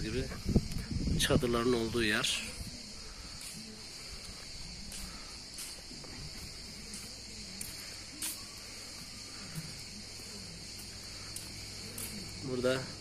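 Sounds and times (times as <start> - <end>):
insects droning in trees: 0.0 - 13.0.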